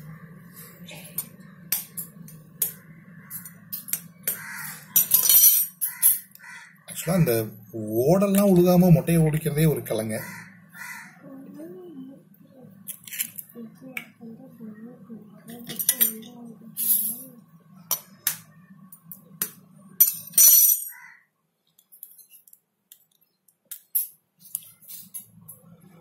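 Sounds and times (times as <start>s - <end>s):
eggs cracking against metal bowl: 1.2s - 7.1s.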